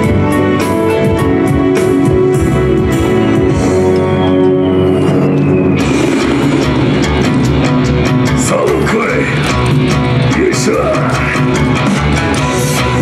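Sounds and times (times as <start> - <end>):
steady drum beat: 0.0 - 4.3, 5.1 - 13.0
rock guitar: 0.0 - 13.0.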